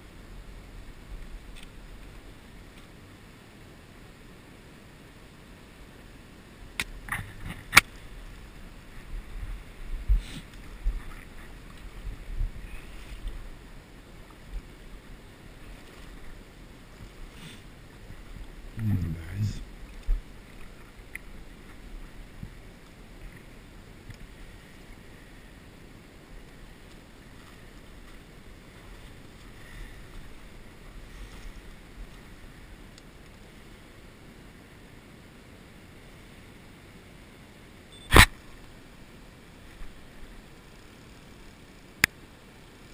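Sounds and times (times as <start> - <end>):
river water rushing: 0.0 - 40.6
water swishing from wading: 5.6 - 18.8.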